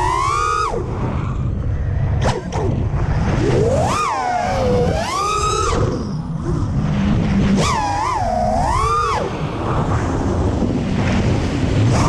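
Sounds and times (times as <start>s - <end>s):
drone motors whining: 0.0s - 9.6s
wind rush: 0.0s - 12.0s
sharp swish: 2.2s - 2.7s.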